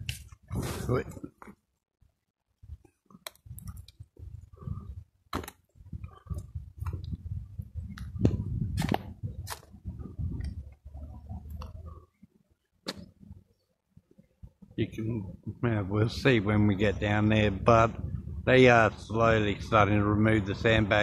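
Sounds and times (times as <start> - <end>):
microphone rumble: 3.5 - 5.1, 5.8 - 12.1, 14.8 - 21.0.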